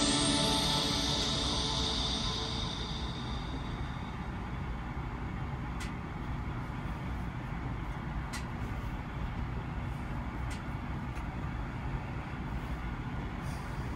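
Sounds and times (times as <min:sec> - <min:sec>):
ending music: 0:00.0 - 0:04.7.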